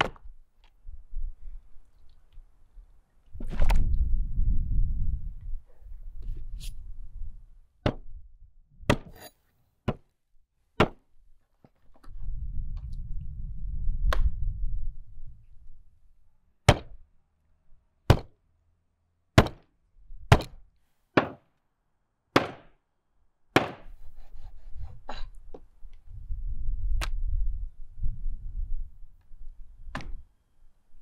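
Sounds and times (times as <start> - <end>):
cleaver chopping on wooden board: 19.4 - 19.6, 22.4 - 22.7, 23.6 - 23.9.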